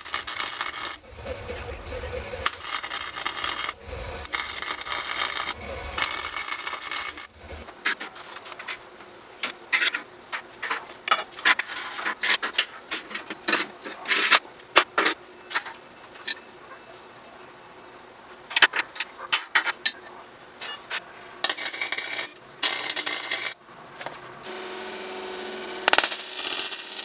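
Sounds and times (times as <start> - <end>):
crackling welding arc: 0.0 - 8.8, 21.4 - 23.6, 24.5 - 27.0.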